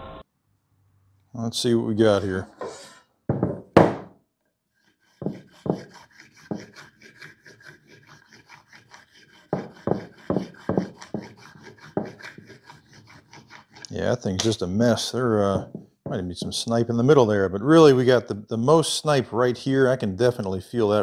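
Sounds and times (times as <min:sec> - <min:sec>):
wooden block knocking on workbench: 0:03.3 - 0:04.1
marker scratching on wood: 0:04.8 - 0:13.9.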